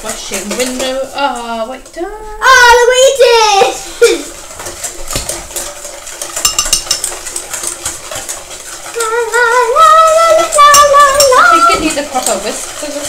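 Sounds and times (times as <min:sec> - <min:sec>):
utensil scraping a mixing bowl: 0:00.0 - 0:02.1, 0:02.8 - 0:13.0
person singing: 0:09.0 - 0:11.8.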